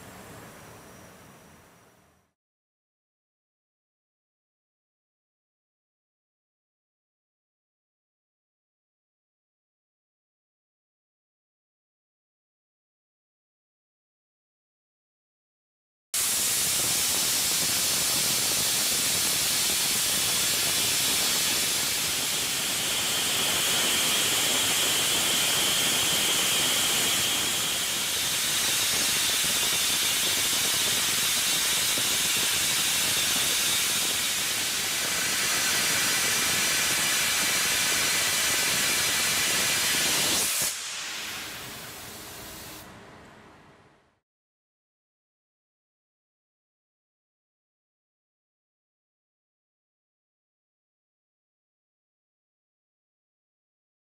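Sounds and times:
plasma torch hissing: 16.2s - 42.8s.

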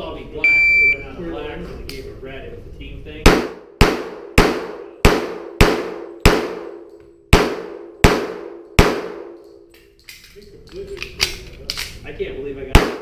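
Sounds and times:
pistol shots with echo: 3.2s - 9.7s, 12.7s - 13.0s.

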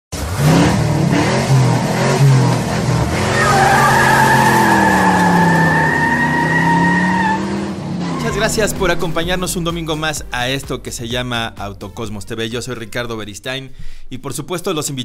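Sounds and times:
car engine revving: 0.1s - 9.6s
tyre squeal: 3.2s - 8.6s.

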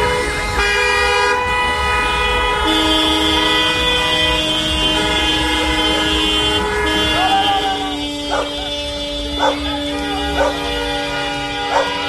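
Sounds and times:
car horns blasting: 0.0s - 12.0s.

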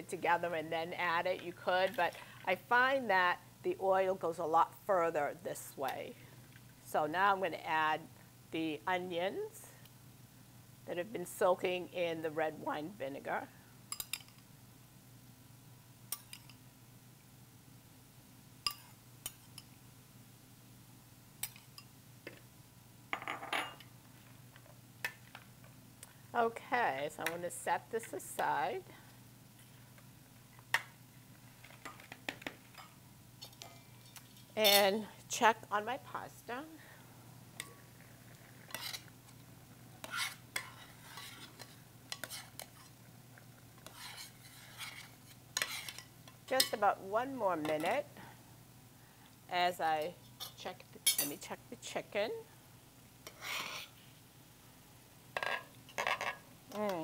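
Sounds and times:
metal spoon clinking on bowls: 13.9s - 14.4s
wooden spoon stirring in saucepan: 37.6s - 43.1s, 43.7s - 46.8s
scraping and clatter of tossing salad: 40.0s - 43.0s, 43.8s - 46.7s.

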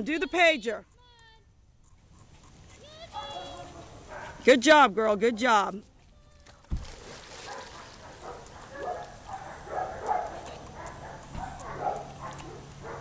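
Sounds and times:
dog barking: 4.1s - 4.4s, 7.4s - 13.0s.

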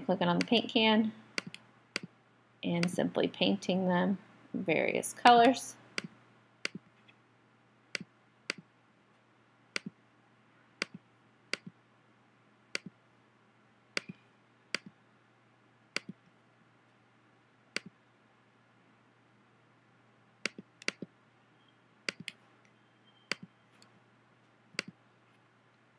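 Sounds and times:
faint steady low hum: 0.0s - 25.9s
computer mouse clicking: 0.4s - 0.6s, 1.4s - 2.1s, 9.8s - 10.0s, 10.8s - 11.8s, 14.0s - 14.9s, 16.0s - 16.3s, 17.8s - 18.0s, 20.4s - 21.1s, 22.1s - 22.4s, 23.3s - 23.5s, 24.8s - 25.0s.

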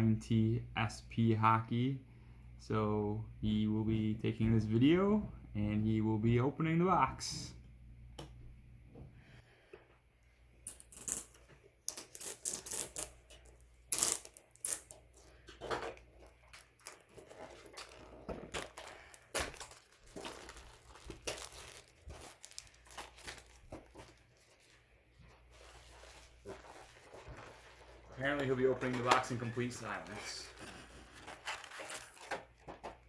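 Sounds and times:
cardboard and wrapping ripping: 11.9s - 13.2s, 13.9s - 15.0s, 16.5s - 24.7s, 25.5s - 32.6s.

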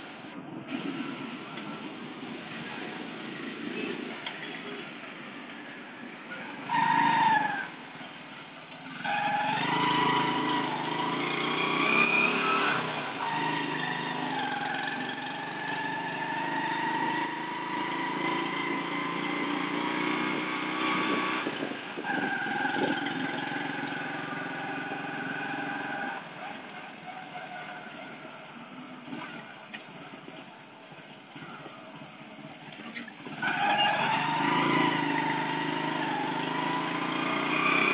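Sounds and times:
motorcycle engine revving: 8.8s - 26.9s, 33.2s - 37.9s.

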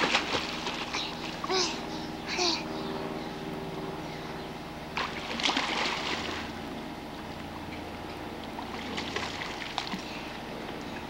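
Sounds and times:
pool water splashing: 0.0s - 2.5s, 4.8s - 11.0s.

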